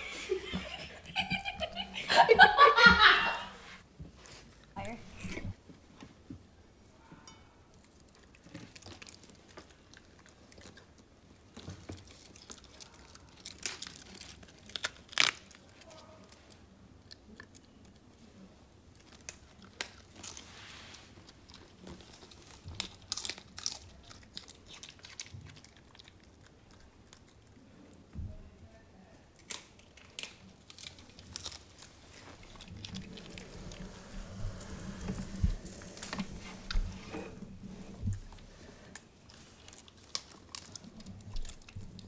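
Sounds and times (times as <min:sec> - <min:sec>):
dog crunching cabbage leaves: 0:07.8 - 0:18.1, 0:18.8 - 0:28.1, 0:29.3 - 0:42.0.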